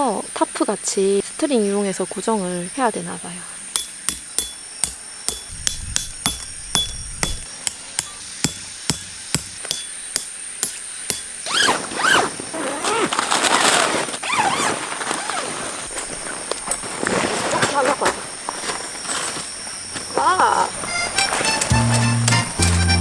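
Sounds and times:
hammer striking metal tent pegs: 0:03.7 - 0:11.7
tent canvas rustling: 0:11.5 - 0:22.0.

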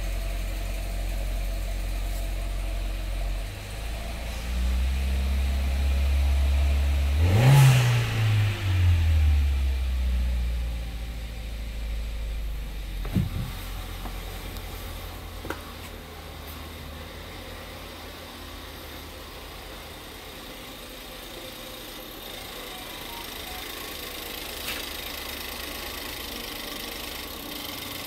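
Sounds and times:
car engine idling: 0:00.0 - 0:28.0
sharp thump: 0:13.0 - 0:13.6.

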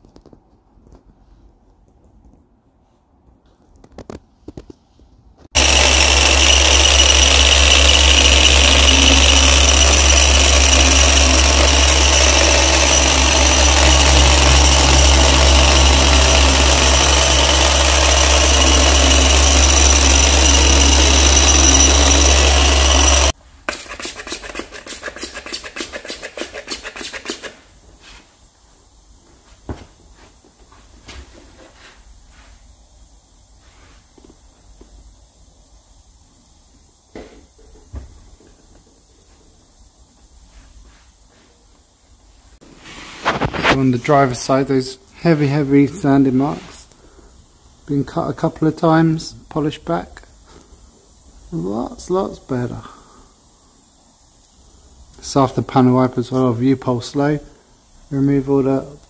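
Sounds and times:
machine polisher running: 0:05.6 - 0:23.4.

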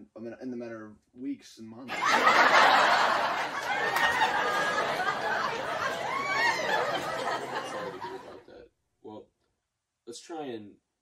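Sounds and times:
people laughing: 0:01.9 - 0:08.5.

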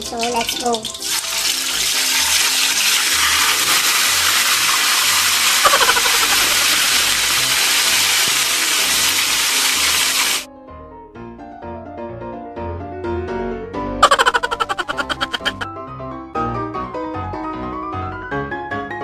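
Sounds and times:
meat sizzling in hot oil: 0:00.0 - 0:10.5.

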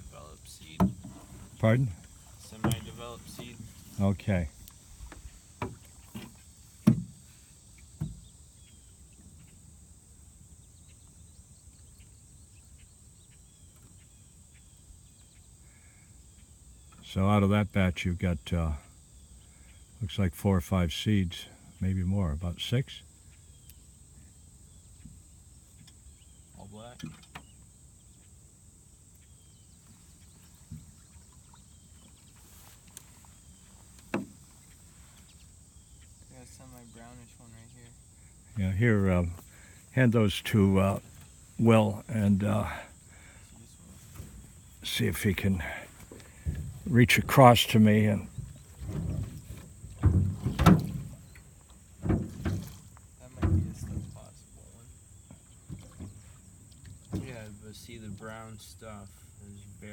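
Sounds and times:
faint insect chirping: 0:00.0 - 0:59.9
hollow knocks on metal boat: 0:00.8 - 0:01.4, 0:05.0 - 0:07.2, 0:08.0 - 0:08.3, 0:48.3 - 0:51.4, 0:52.0 - 0:54.2.

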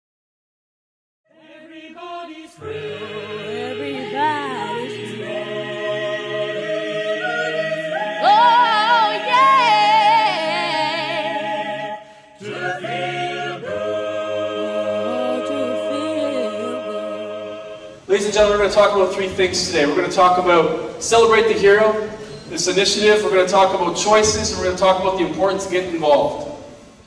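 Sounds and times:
a cappella choral singing: 0:01.3 - 0:27.0
high voice singing with vibrato: 0:02.6 - 0:17.6.

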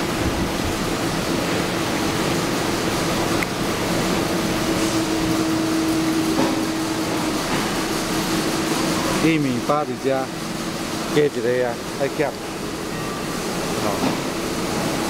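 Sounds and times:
machine humming: 0:00.0 - 0:15.0.

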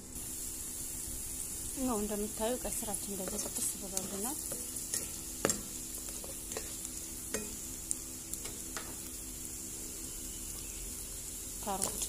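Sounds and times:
food sizzling in oil: 0:00.0 - 0:12.0
spatula scraping a pan: 0:03.2 - 0:06.8.

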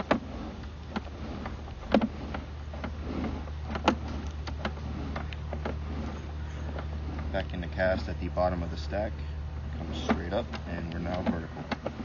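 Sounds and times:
cable clicks and knocks: 0:00.0 - 0:07.3, 0:09.8 - 0:12.0
steady low hum: 0:00.0 - 0:12.0.

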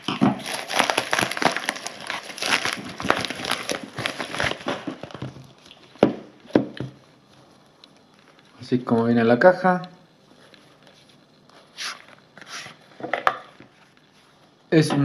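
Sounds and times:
padded mailer crinkling and tearing: 0:00.0 - 0:06.0.

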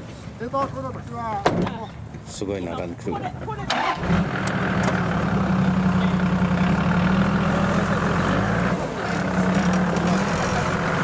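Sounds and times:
truck engine running at low revs: 0:04.0 - 0:11.0.

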